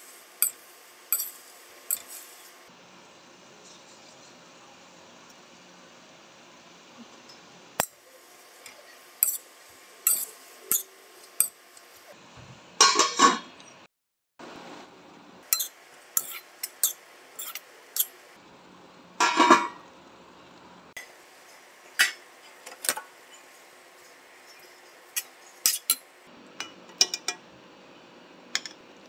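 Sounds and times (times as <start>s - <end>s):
metal cookware clinking: 0.4s - 2.2s, 8.6s - 11.6s, 12.8s - 13.8s, 15.5s - 18.2s, 19.2s - 19.8s, 22.0s - 23.4s, 24.5s - 27.4s, 28.5s - 28.8s
pan lid clattering: 12.8s - 13.4s, 19.2s - 19.8s.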